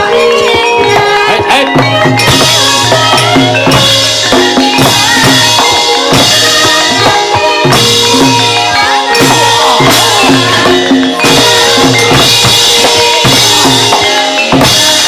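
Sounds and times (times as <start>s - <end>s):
gamelan music: 0.0s - 15.0s
loud drumming: 0.0s - 15.0s
ringing metallophone notes: 0.0s - 15.0s.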